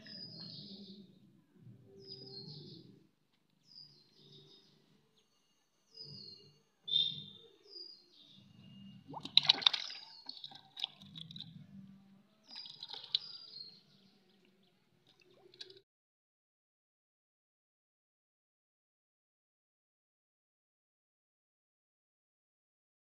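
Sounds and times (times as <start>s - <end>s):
fish splashing in bucket: 9.1s - 11.4s, 12.5s - 13.4s.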